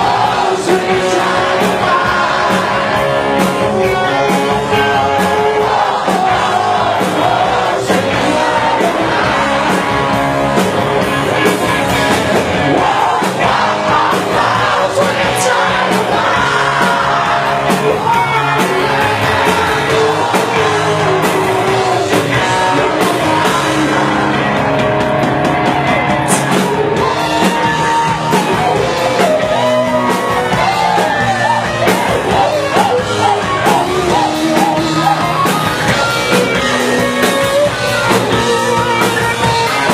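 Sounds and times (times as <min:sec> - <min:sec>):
audience yelling: 0:00.0 - 0:39.9
rock band playing live: 0:00.0 - 0:39.9
person singing: 0:12.7 - 0:24.7, 0:26.3 - 0:39.9.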